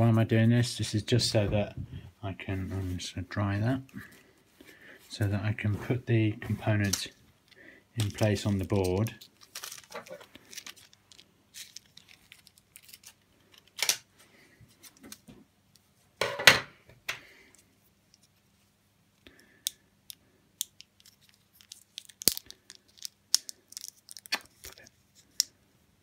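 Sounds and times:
foil crinkling: 8.0s - 13.8s, 21.0s - 24.8s
foil packaging tearing: 8.8s - 13.8s.

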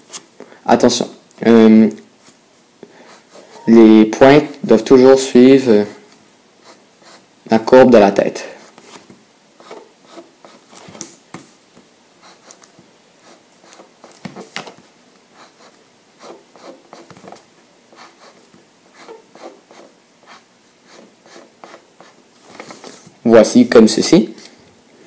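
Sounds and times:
pencil scratching on paper: 6.6s - 7.3s, 9.6s - 10.8s, 12.2s - 14.5s, 15.4s - 17.1s, 17.9s - 22.2s.

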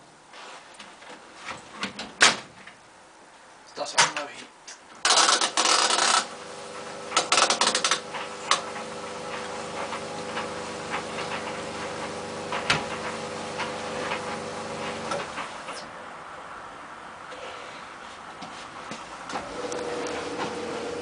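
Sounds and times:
tumble dryer humming: 6.2s - 15.8s, 19.3s - 21.0s.

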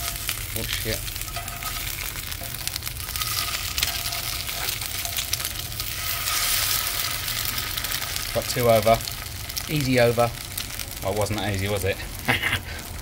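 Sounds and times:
metal spatula flipping: 0.0s - 9.8s
eggs sizzling in a pan: 0.0s - 13.0s.

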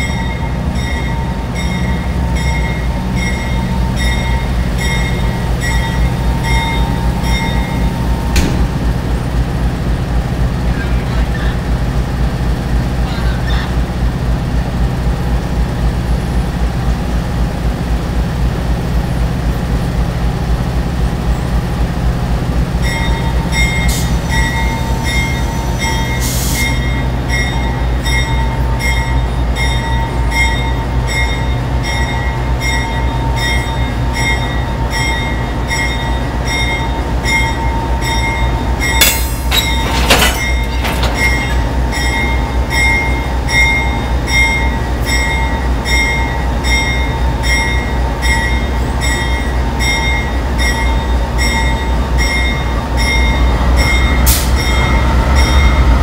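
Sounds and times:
locomotive bell ringing: 0.0s - 8.5s, 22.6s - 56.0s
diesel locomotive idling: 0.0s - 56.0s
air hissing: 24.9s - 26.8s.

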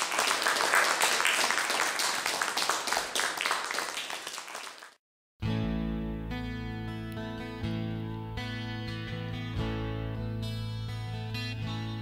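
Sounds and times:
audience applause: 0.0s - 5.0s
guitar music: 5.4s - 12.0s.

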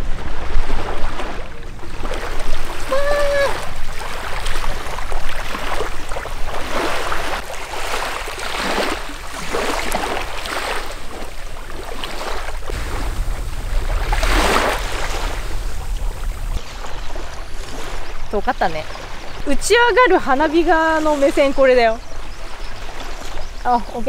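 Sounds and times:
waves washing on shore: 0.0s - 23.5s
low wind rumble: 8.3s - 22.5s.

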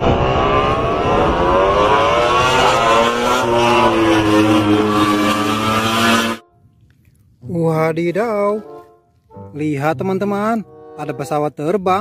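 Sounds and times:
vehicle engine revving: 0.0s - 6.4s.

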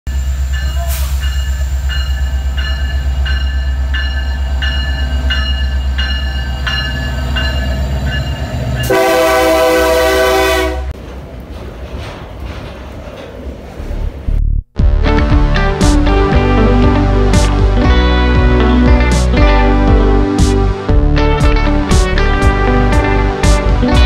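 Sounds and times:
train wagons rolling past: 0.1s - 14.3s
diesel locomotive engine rumble: 0.1s - 24.0s
locomotive horn: 8.8s - 11.0s.

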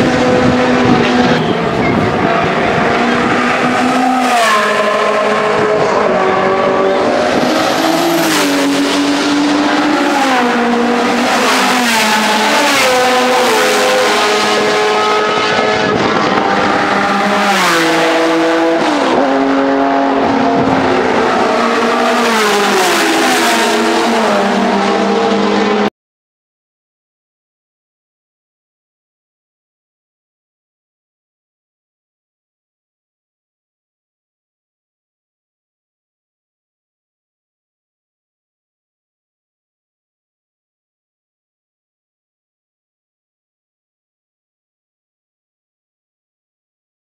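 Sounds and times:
race cars driving past: 0.0s - 25.9s.

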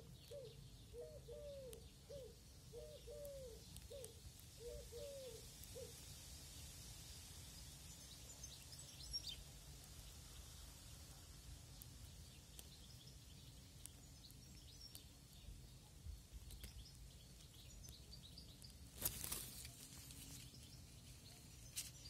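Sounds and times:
brief rustling: 19.0s - 20.5s.

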